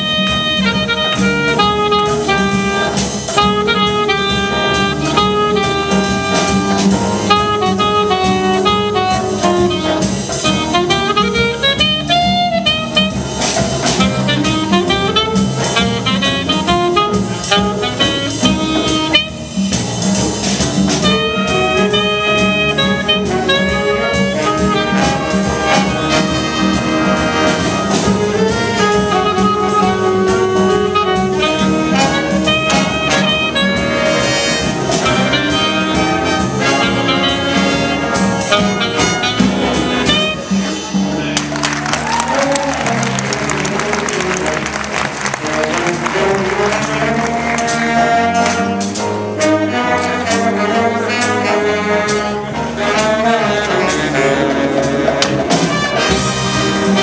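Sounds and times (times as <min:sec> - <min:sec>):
saxophone solo: 0:00.0 - 0:19.7, 0:21.0 - 0:57.0
trumpets playing: 0:00.0 - 0:19.8, 0:21.0 - 0:57.0
jazz band playing: 0:00.0 - 0:57.0.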